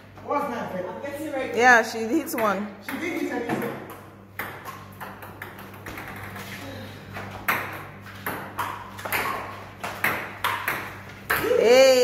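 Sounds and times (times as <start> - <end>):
ball bouncing on table: 2.3 - 6.6, 7.2 - 11.6
ping pong ball hitting bats: 2.3 - 12.0.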